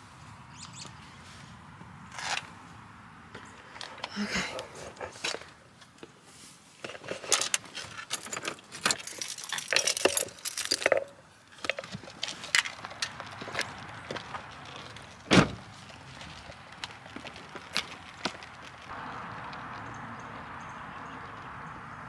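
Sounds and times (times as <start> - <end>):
rustling of handled things: 3.5 - 18.9
keys jangling: 8.0 - 11.1
car door shutting: 15.3 - 15.6.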